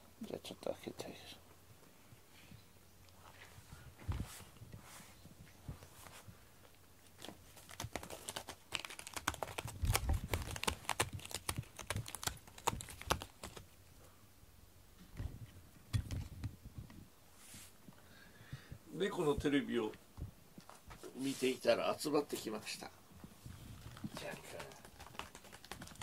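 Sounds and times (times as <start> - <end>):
fur rubbing against microphone: 3.2 - 6.4, 17.4 - 17.8, 21.0 - 21.7.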